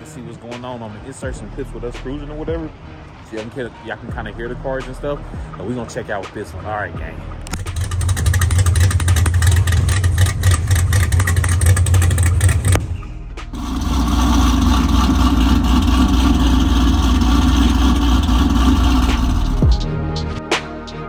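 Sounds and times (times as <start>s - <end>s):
car engine steady drone: 1.0s - 5.8s, 6.9s - 20.2s
car engine idling choppily: 7.4s - 19.8s.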